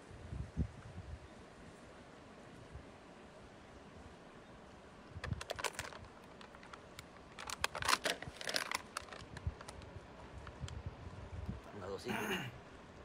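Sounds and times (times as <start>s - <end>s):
plastic bottle crinkling and clicking: 5.2s - 9.9s.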